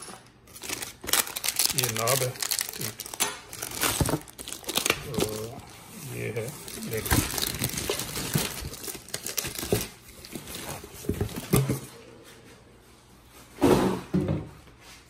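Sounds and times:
plastic bag crinkling: 0:00.5 - 0:11.8.

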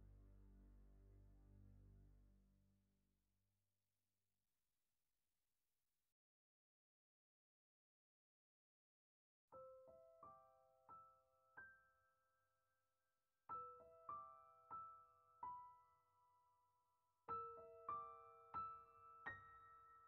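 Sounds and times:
soft piano music: 0:09.5 - 0:12.5, 0:13.5 - 0:20.0.

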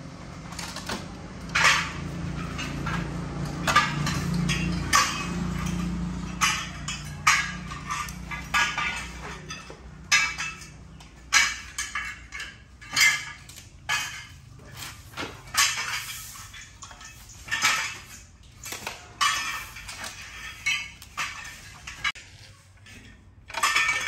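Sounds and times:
metal frames clinking and scraping: 0:00.0 - 0:24.0.

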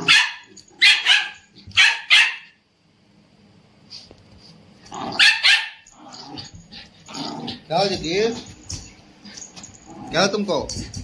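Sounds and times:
dog barking: 0:00.0 - 0:02.6, 0:05.1 - 0:05.9.

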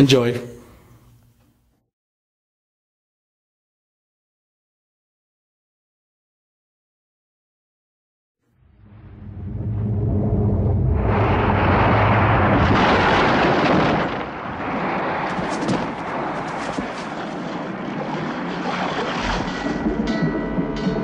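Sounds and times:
low steady rumble: 0:08.6 - 0:17.0
rushing roar of water: 0:09.1 - 0:19.9
sharp cracks: 0:11.9 - 0:19.6.

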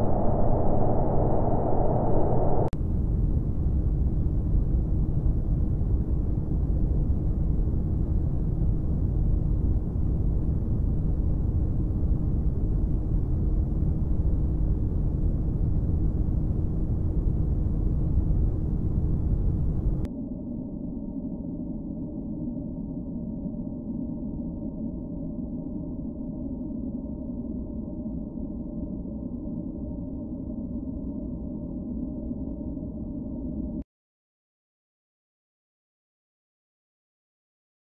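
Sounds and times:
low rumbling noise: 0:00.0 - 0:26.3
faint hum: 0:00.0 - 0:33.8.

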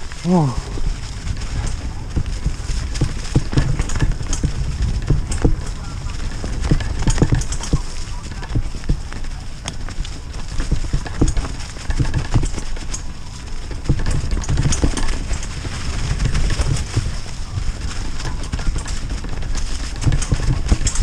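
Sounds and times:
bike knocking and rattling: 0:00.0 - 0:21.0
bike tyres rolling over leaves: 0:00.0 - 0:21.0.

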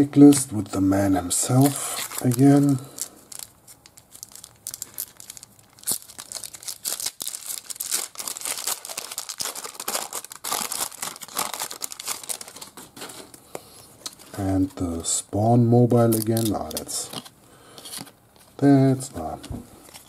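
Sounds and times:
plastic wrapper crinkling and tearing: 0:01.5 - 0:14.4, 0:15.9 - 0:18.6.

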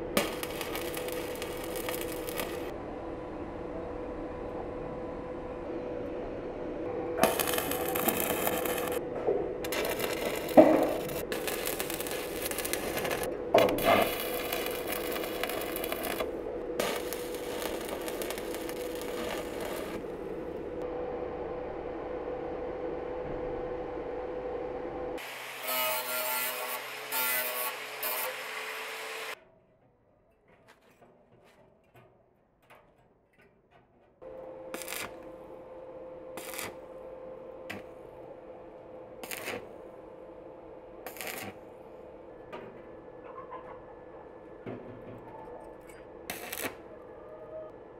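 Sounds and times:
welding arc crackling: 0:00.0 - 0:02.7, 0:07.2 - 0:09.0, 0:09.6 - 0:20.7, 0:34.7 - 0:35.4, 0:36.4 - 0:36.9, 0:39.2 - 0:39.7, 0:41.0 - 0:41.6, 0:46.3 - 0:46.8
steady hum: 0:00.0 - 0:25.2.

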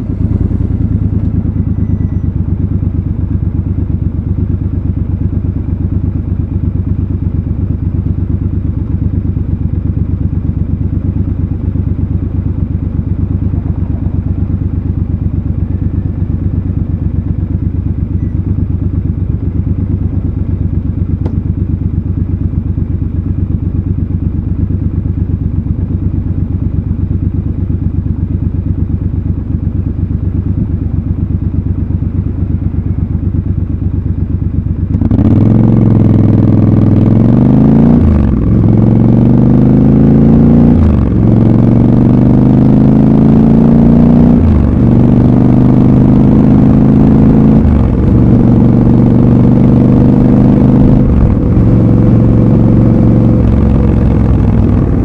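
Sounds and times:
motorcycle engine idling: 0:00.0 - 0:43.0, 0:44.4 - 0:49.8, 0:50.5 - 0:55.0.

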